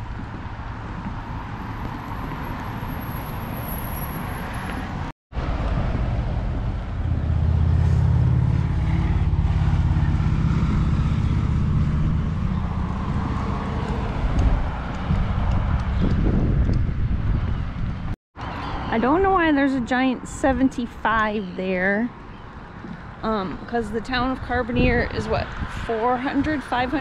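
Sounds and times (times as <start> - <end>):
vehicles driving past: 0.0 - 27.0.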